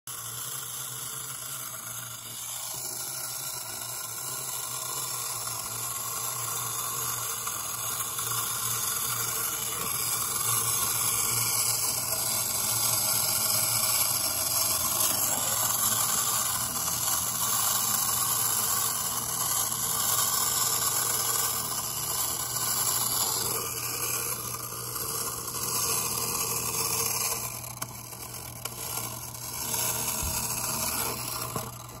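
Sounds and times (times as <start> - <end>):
wind-up toy motor whirring: 0.1 - 32.0.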